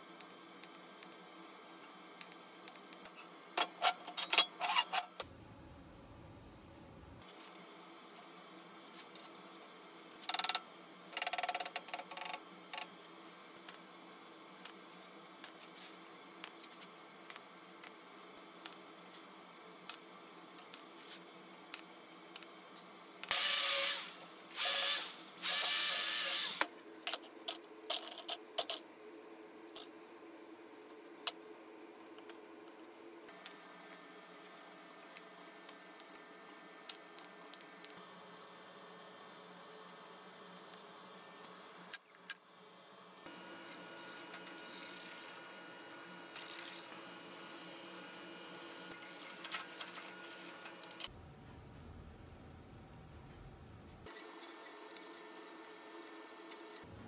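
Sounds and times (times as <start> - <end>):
faint steady hum: 5.1 - 25.1.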